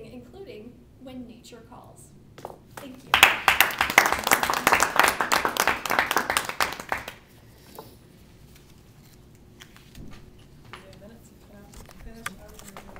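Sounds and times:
small group applauding: 2.8 - 7.3.

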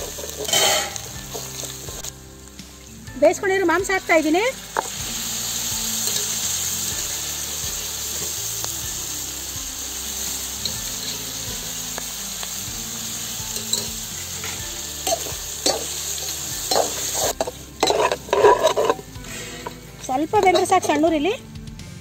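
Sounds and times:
metal spatula scraping pan: 0.0 - 2.1, 13.6 - 21.1
meat sizzling in hot oil: 0.0 - 21.0.

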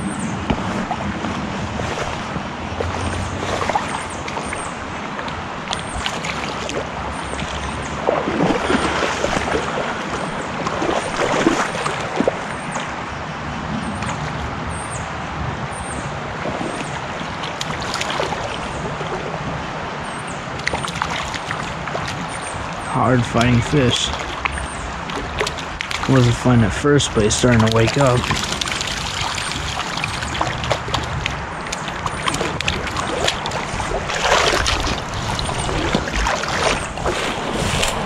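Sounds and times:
creek water running: 0.0 - 14.7, 16.1 - 38.0
wind buffeting microphone: 0.0 - 38.0
fish splashing at surface: 20.6 - 38.0.

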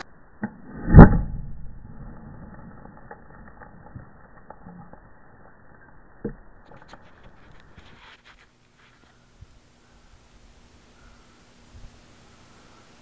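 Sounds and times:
low rumble of blast: 0.4 - 7.9.

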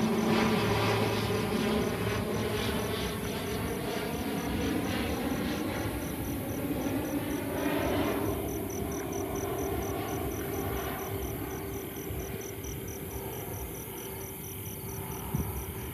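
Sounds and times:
broad rushing noise: 0.0 - 3.7
crickets chirping: 0.0 - 15.9
distant aircraft rumble: 0.0 - 15.9.

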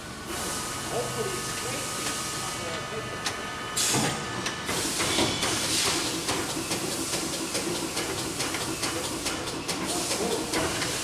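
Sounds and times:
punch press machine noise: 0.2 - 11.0
sharp machine clicks: 4.7 - 11.0.

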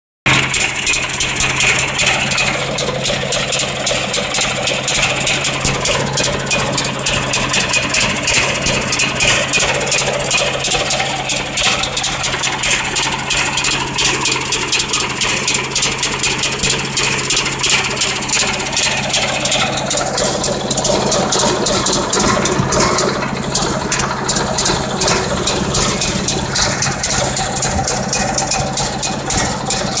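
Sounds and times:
generator idling with exhaust pulses: 0.2 - 30.0.

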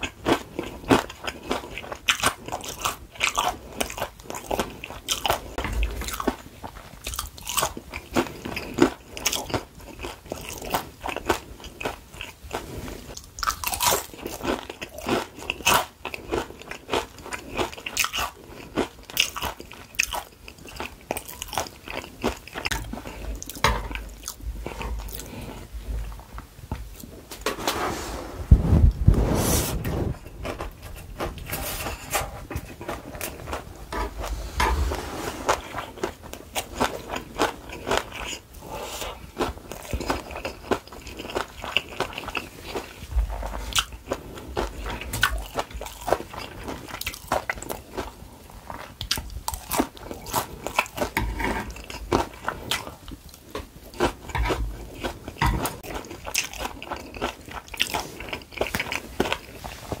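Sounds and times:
chewing and crunching food: 0.0 - 27.4, 30.1 - 60.0
dull low thumps: 28.4 - 30.4.

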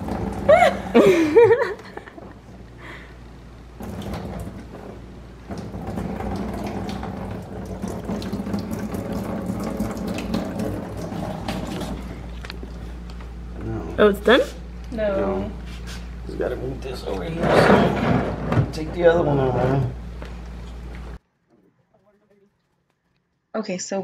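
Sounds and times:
coolant splashing into drain pan: 0.0 - 1.6, 3.7 - 12.8.

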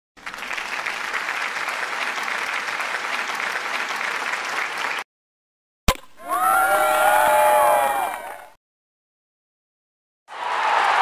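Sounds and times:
crowd applause: 0.2 - 5.1, 10.3 - 11.0.

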